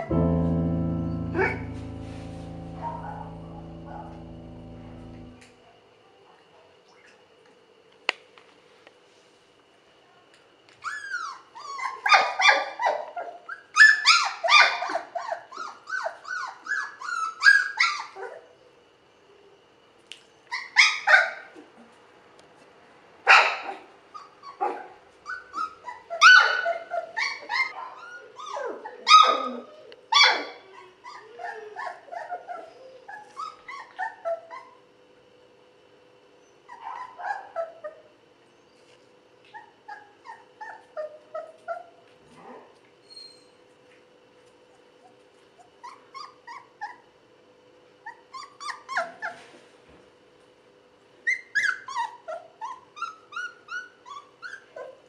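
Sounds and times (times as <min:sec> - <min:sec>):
puppy barks: 0:23.3 - 0:23.8.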